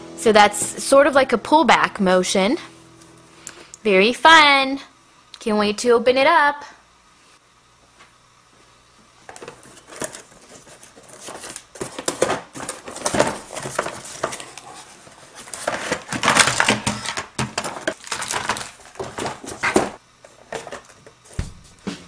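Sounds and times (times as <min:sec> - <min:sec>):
cardboard and plastic scraping: 0:09.3 - 0:21.6
plastic bag crinkling: 0:09.4 - 0:21.2.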